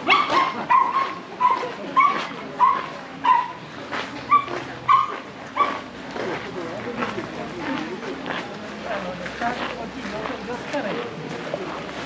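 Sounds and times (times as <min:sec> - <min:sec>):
dog yelping: 0:00.0 - 0:03.6, 0:04.3 - 0:05.8.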